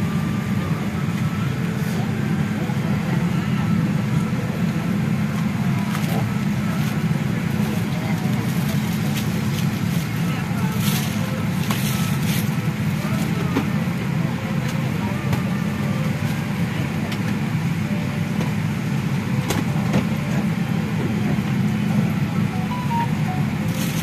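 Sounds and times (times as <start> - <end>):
airliner cabin drone: 0.0 - 24.0.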